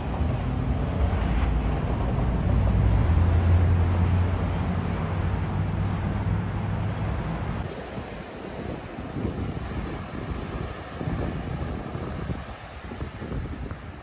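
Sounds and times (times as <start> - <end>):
vehicle engine hum: 0.0 - 7.7.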